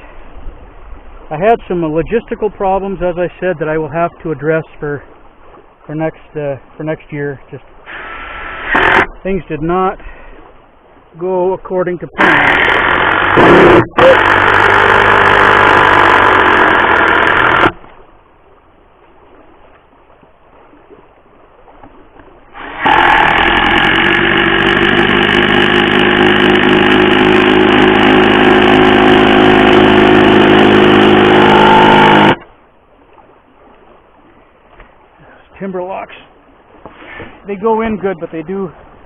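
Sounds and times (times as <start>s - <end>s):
cordless driver motor under load: 7.9s - 9.1s, 12.2s - 17.8s, 22.6s - 32.5s.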